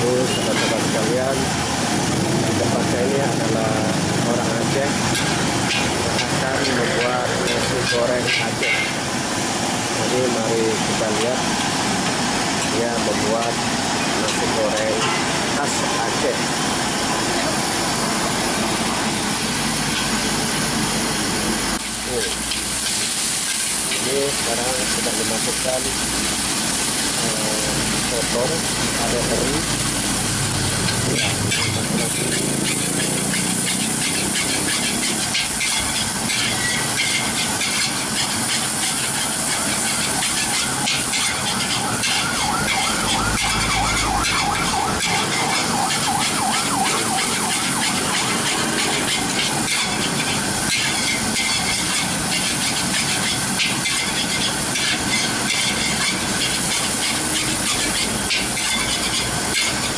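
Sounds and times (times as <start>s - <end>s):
food sizzling in a wok: 0.0s - 59.9s
metal spatula scraping a wok: 4.6s - 9.0s, 30.7s - 59.9s.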